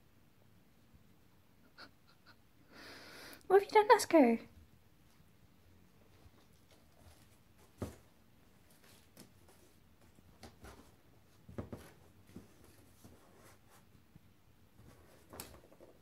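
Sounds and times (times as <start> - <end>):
cat paws on cardboard: 6.1 - 16.0.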